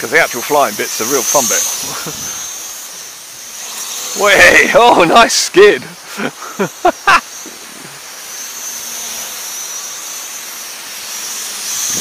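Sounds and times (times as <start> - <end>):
drone propellers whining: 0.0 - 12.0
person exclaiming: 4.2 - 7.2.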